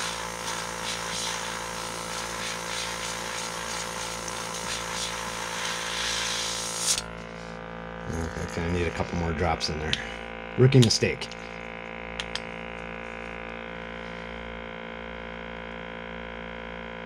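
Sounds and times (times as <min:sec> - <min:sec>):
airbrush spraying hiss: 0:00.0 - 0:07.0
air compressor hum: 0:00.0 - 0:15.9.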